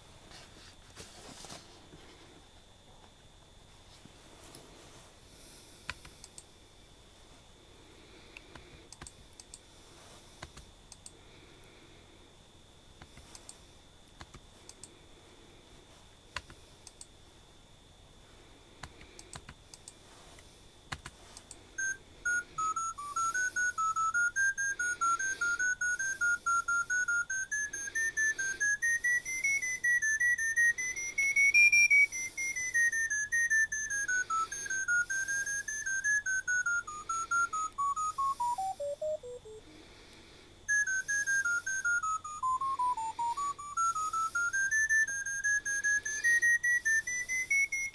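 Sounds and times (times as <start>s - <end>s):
faint clicks: 5.9s - 6.5s, 8.3s - 9.6s, 10.4s - 11.2s, 16.4s - 17.1s
short electronic beeps: 21.8s - 39.6s.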